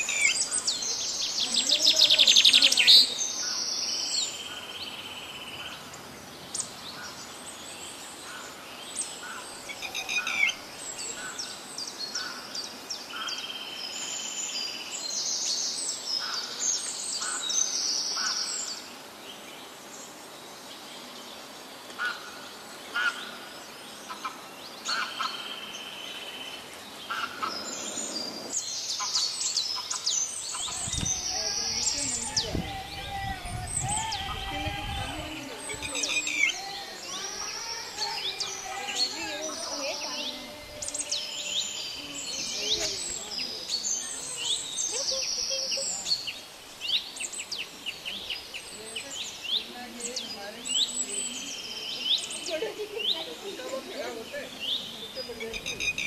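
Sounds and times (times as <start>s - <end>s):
lapwing alarm calls: 8.2s - 13.4s, 16.2s - 18.8s, 22.0s - 47.3s, 54.2s - 56.0s.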